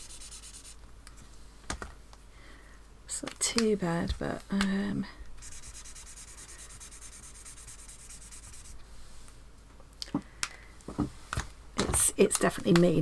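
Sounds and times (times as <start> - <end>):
marker scrubbing on paper: 0.0 - 0.8, 5.4 - 8.8.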